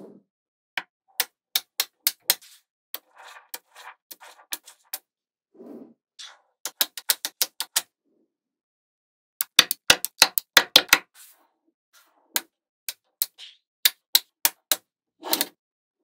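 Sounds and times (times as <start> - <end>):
magnetic balls clicking together: 6.7 - 7.8, 9.4 - 11.0.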